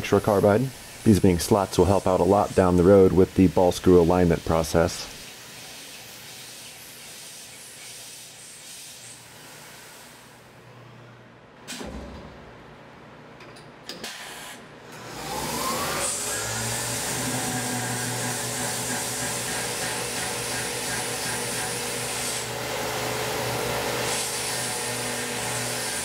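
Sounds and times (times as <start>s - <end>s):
coolant mist spray hissing: 0.0s - 10.3s
faint hiss: 0.0s - 10.4s.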